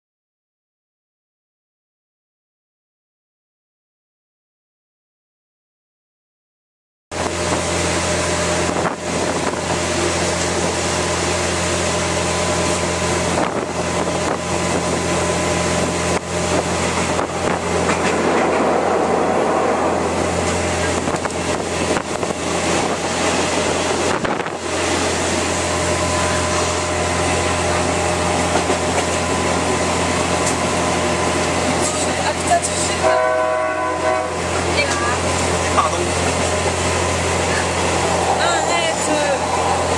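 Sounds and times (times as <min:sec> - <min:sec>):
train rumbling: 0:07.1 - 0:39.9
wind rushing in: 0:13.4 - 0:25.9, 0:37.2 - 0:39.9.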